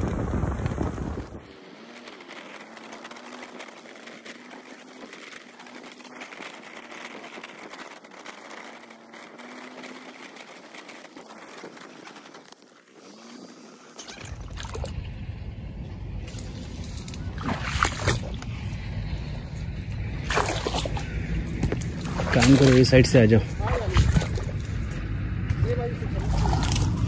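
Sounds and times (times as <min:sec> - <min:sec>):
small motorbike engine whirring: 0:00.0 - 0:27.0.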